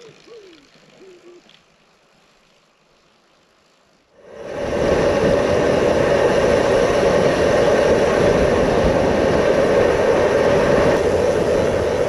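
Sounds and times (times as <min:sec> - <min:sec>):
bicycle tyre noise: 0:00.0 - 0:12.0
wind rushing: 0:04.2 - 0:12.0.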